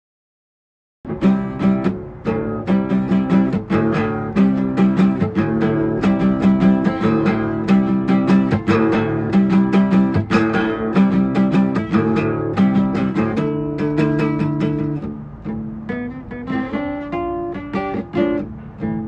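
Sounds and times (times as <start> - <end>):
acoustic guitar strumming: 1.1 - 19.0.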